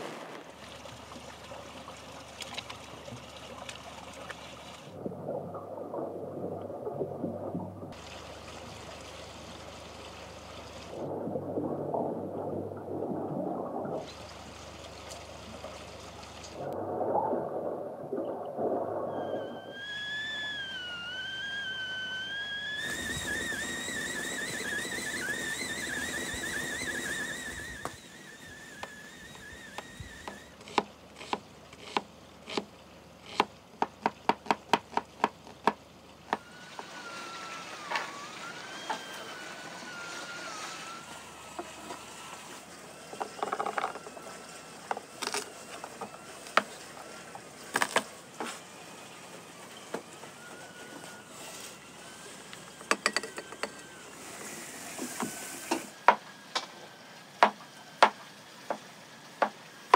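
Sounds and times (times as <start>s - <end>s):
kettle whistling: 19.0s - 30.6s, 36.3s - 44.6s, 49.7s - 56.1s
hissing steam: 51.1s - 56.5s.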